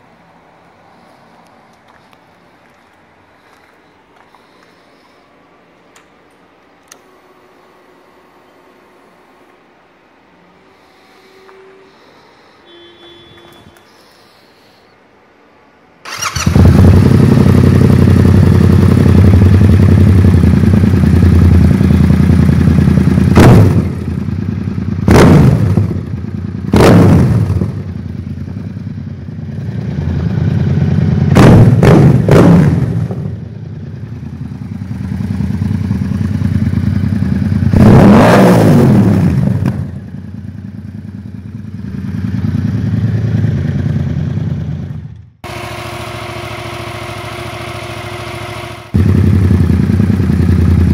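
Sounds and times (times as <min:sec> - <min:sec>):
motorcycle engine revving: 0:16.1 - 0:50.9.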